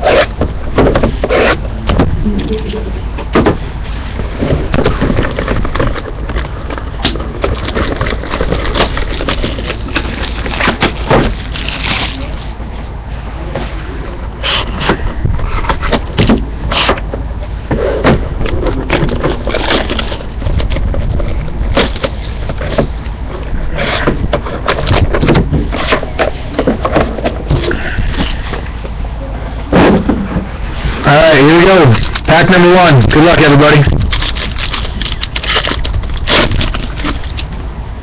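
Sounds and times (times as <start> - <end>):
plastic wrap crinkling and tearing: 7.4 - 12.4, 31.9 - 37.5.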